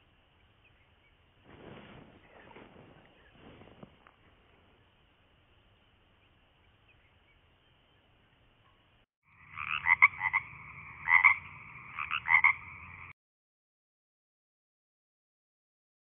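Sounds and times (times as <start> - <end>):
frog croaking: 9.3 - 13.2.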